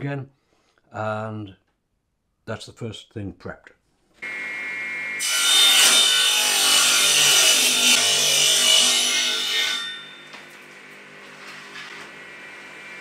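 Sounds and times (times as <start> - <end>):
table saw cutting wood: 4.2 - 13.0
table saw running freely: 5.2 - 13.0.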